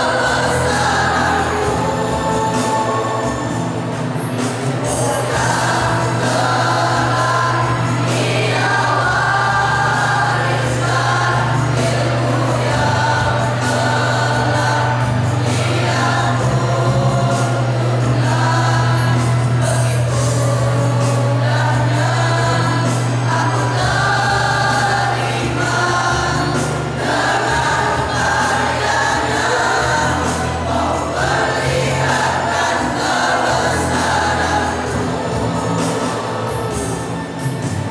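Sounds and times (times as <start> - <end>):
boys choir singing: 0.0 - 37.9.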